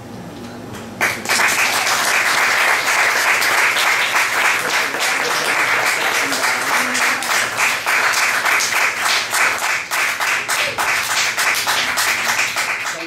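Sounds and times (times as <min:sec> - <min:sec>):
audience applauding: 0:01.0 - 0:13.0.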